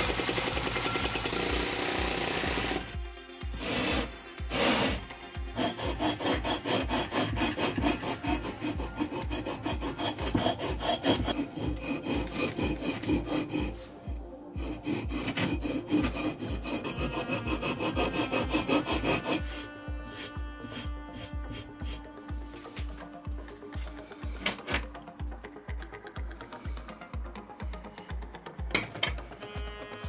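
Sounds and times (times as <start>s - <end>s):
hand rasp scraping concrete: 0.0s - 23.1s, 23.9s - 25.0s.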